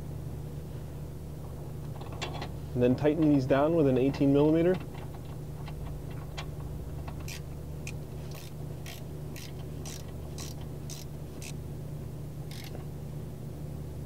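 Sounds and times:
steady low hum: 0.0 - 14.0
ratcheting wrench clicking: 7.1 - 11.6, 12.5 - 12.8.

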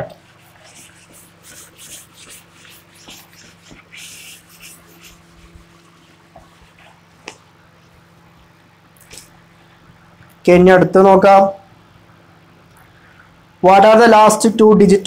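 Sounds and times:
whiteboard eraser wiping: 0.1 - 7.5.

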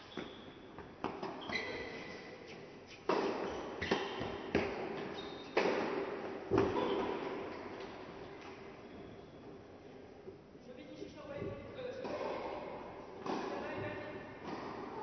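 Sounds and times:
racket hitting tennis ball: 3.0 - 7.5, 12.0 - 15.0
tennis ball bouncing: 13.2 - 15.0.

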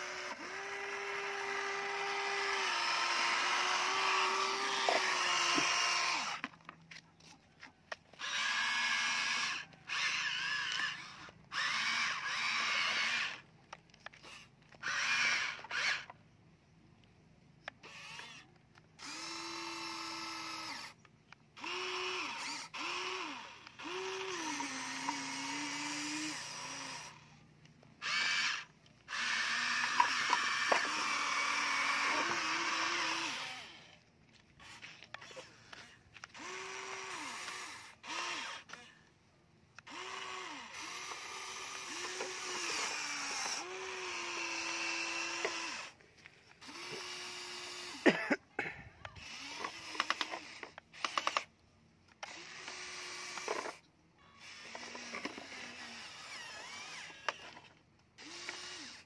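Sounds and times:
toy excavator motors whining: 0.0 - 48.2, 48.9 - 59.0
small clicks: 49.0 - 53.9.

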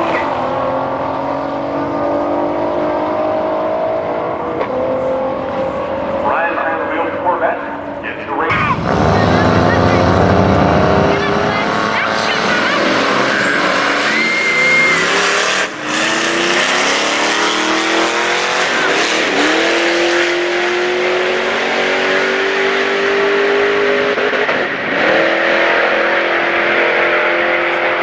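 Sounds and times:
car engine revving hard: 0.0 - 6.4, 8.4 - 28.0.

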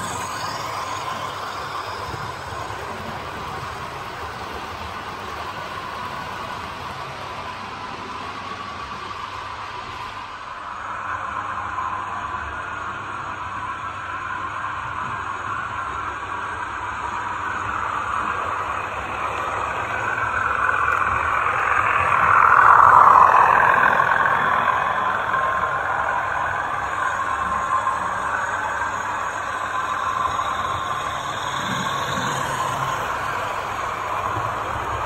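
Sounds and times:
model train motor whirring: 0.0 - 8.1, 17.0 - 35.0.

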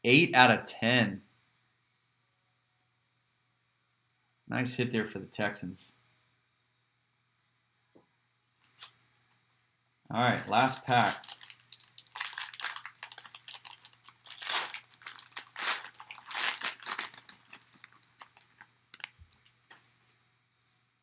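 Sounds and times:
foil wrapper tearing and crinkling: 8.6 - 9.0, 10.4 - 19.7.

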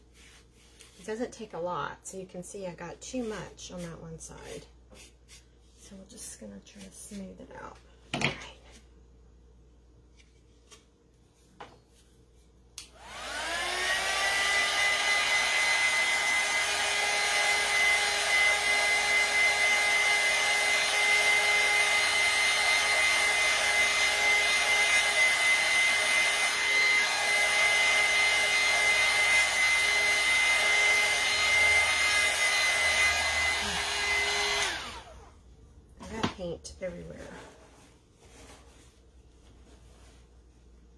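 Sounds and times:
heat gun fan whining and blowing: 12.8 - 35.4.

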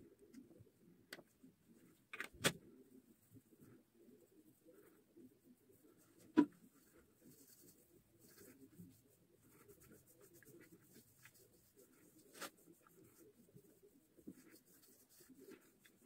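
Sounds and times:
fingertips rubbing cream into skin: 6.8 - 16.0.

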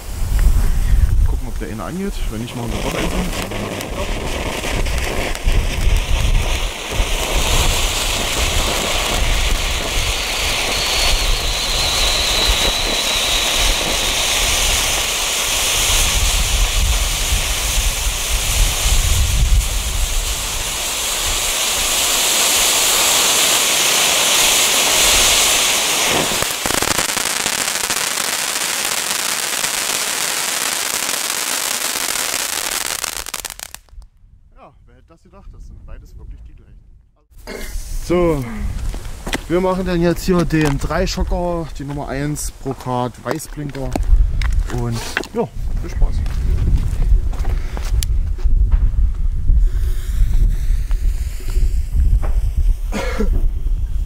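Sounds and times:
firework fountains hissing: 2.0 - 33.9.

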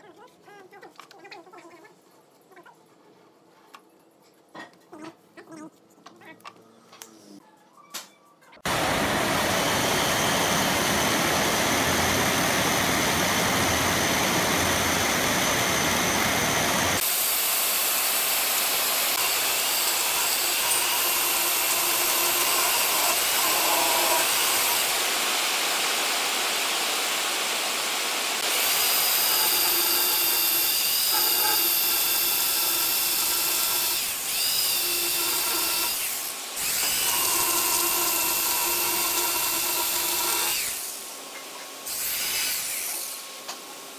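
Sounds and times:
electric chainsaw cutting wood: 8.7 - 41.0.

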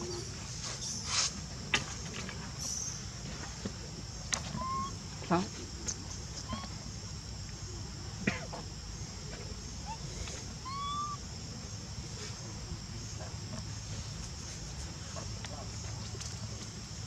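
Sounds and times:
insects buzzing: 0.0 - 17.0
whistled call: 4.5 - 4.9, 10.7 - 11.2.

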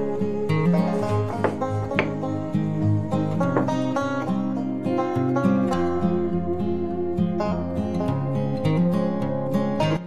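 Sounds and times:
plucked string instrumental music: 0.0 - 10.0.

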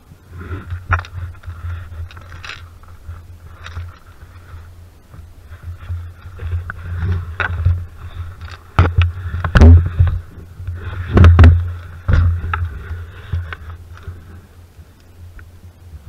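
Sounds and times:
microphone handling rumble: 0.0 - 16.0
knocks and thumps on wooden planks: 5.1 - 14.2.

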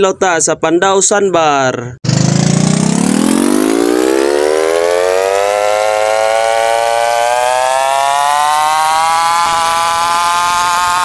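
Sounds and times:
small boat engine speeding up: 2.0 - 11.0.

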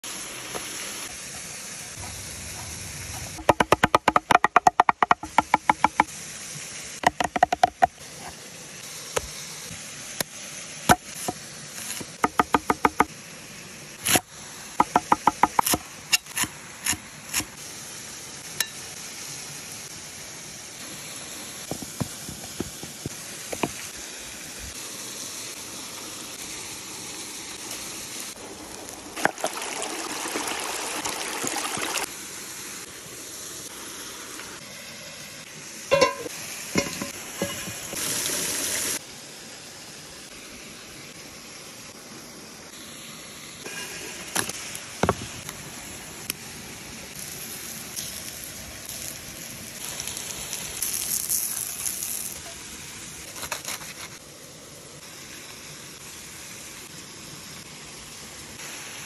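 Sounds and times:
steady rushing hiss: 0.0 - 29.2, 32.0 - 59.0
knife chopping on wooden board: 3.4 - 6.1, 7.1 - 7.9, 12.2 - 13.1, 14.8 - 15.8
knocks and rustling in wooden bowl: 35.9 - 37.8.

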